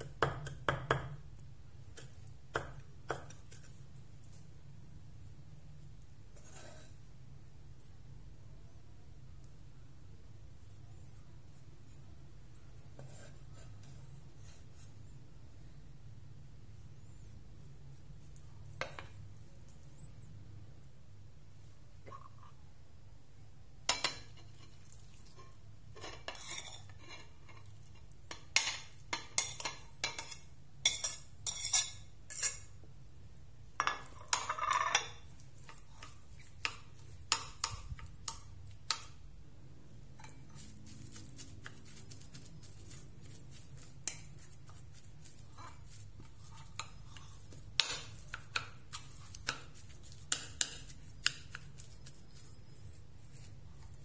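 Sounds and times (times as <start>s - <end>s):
faint low hum: 0.0s - 29.1s
utensils clinking on ceramic bowl: 33.8s - 36.7s.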